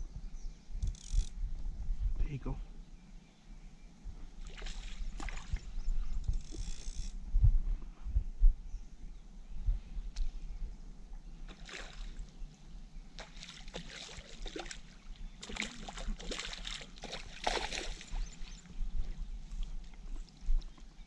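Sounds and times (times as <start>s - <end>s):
landing net dipping into water: 4.4s - 5.6s, 11.5s - 12.2s, 13.2s - 18.2s
fish thrashing and splashing: 13.2s - 18.2s.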